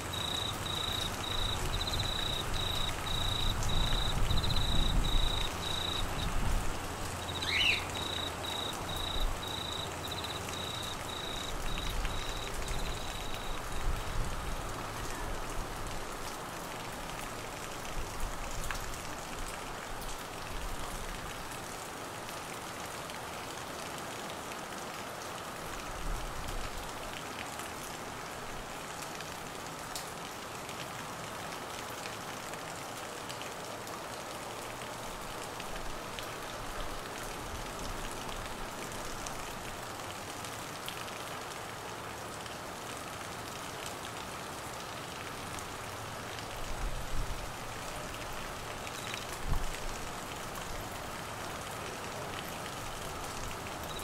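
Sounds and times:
cricket chirping: 0.0 - 6.4, 7.2 - 13.8
rain falling: 0.0 - 54.0.

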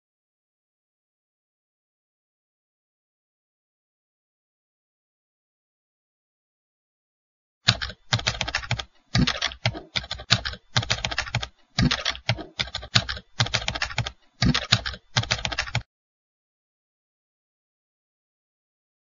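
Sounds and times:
keyboard keystroke clicks: 7.7 - 15.9.

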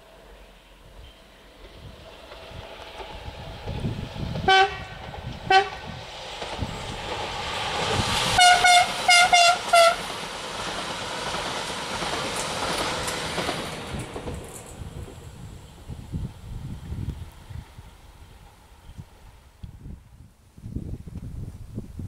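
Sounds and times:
train running noise: 0.0 - 20.1
train horn toots: 4.4 - 6.0, 8.4 - 10.1.

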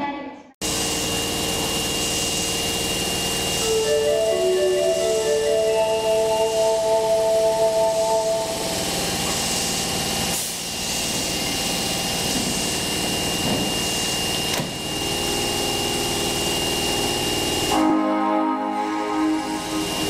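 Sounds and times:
subway train rumble and hiss: 0.6 - 20.0
thin high tone: 3.6 - 9.2.

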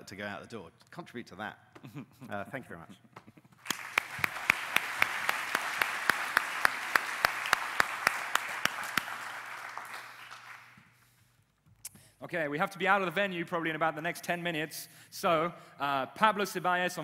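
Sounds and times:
close hands clapping steadily: 3.4 - 11.1
audience applauding: 3.6 - 11.0.

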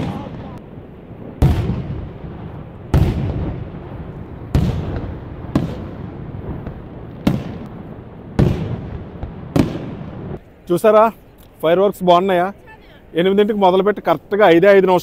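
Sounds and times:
fireworks bursting with booms: 0.0 - 10.4.

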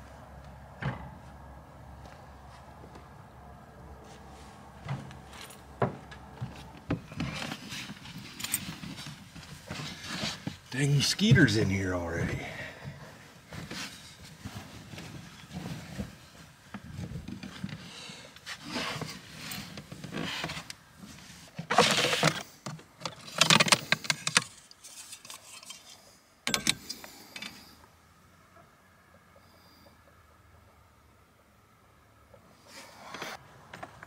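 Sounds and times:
gear rustling and clattering: 4.8 - 11.4, 18.5 - 27.6.

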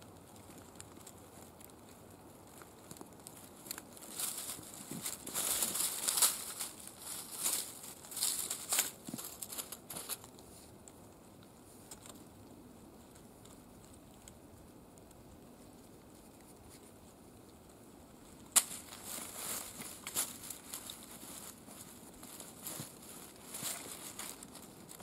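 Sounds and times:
rustling on dry leaves: 0.0 - 25.0
rope coiling: 18.5 - 25.0.

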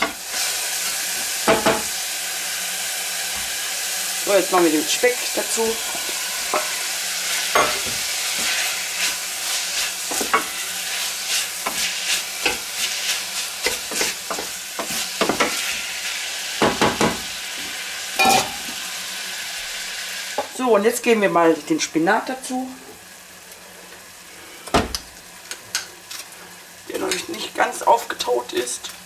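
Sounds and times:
bacon and onions sizzling: 0.0 - 29.0.

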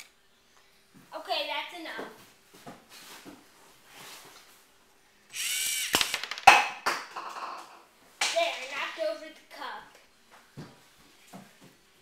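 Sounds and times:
motor whirring: 5.3 - 6.1.

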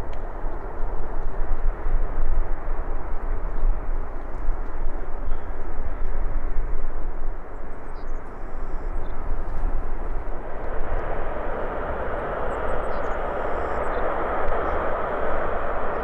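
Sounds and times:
jet aircraft taxiing: 7.4 - 16.0.

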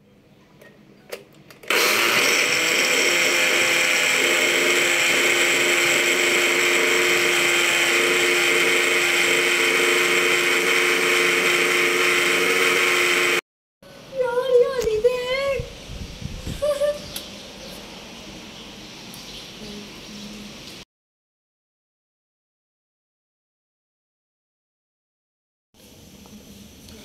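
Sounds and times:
blender motor running: 1.7 - 13.4.

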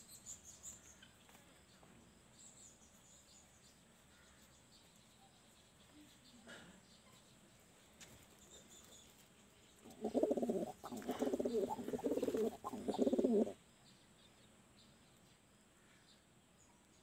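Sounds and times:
pigeon cooing: 9.8 - 13.6.

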